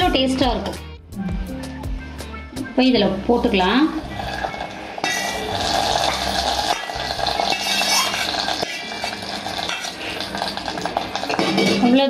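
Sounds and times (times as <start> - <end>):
steel ladle scraping a pan: 4.0 - 11.9.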